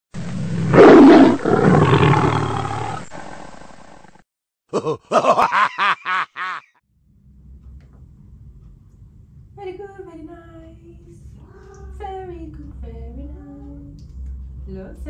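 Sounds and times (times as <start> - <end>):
rough roar-like blast: 0.2 - 4.2.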